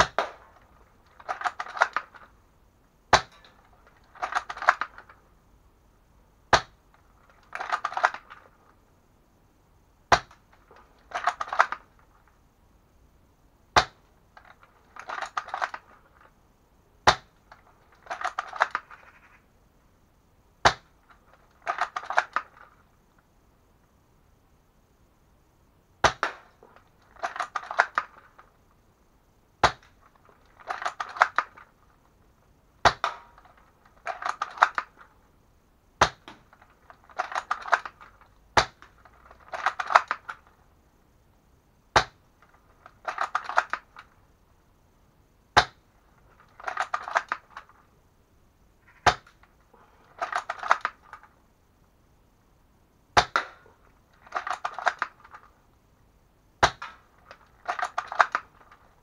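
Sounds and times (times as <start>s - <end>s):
rifle bolt rattling clicks: 36.5s - 38.2s, 54.2s - 55.5s.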